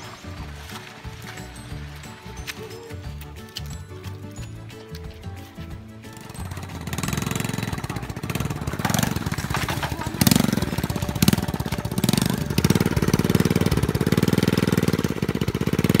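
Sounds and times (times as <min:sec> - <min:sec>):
small motorcycle engine revving: 0:06.1 - 0:16.0.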